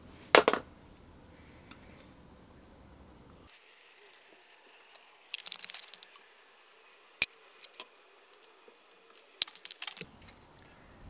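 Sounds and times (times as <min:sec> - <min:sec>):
small metal parts clicking: 0:03.8 - 0:10.1.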